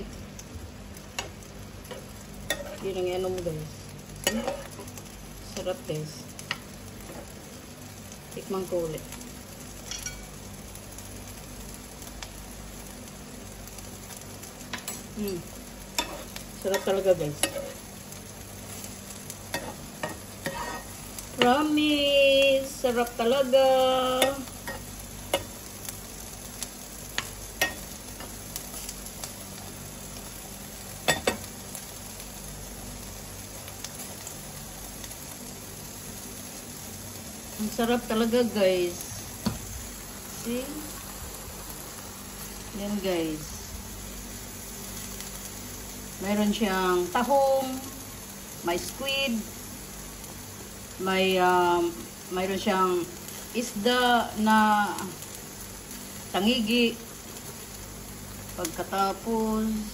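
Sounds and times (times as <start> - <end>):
sauce sizzling in frying pan: 0.0 - 59.9.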